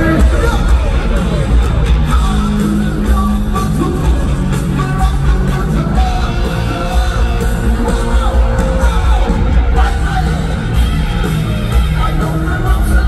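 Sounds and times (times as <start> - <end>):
live rock band playing: 0.0 - 13.0.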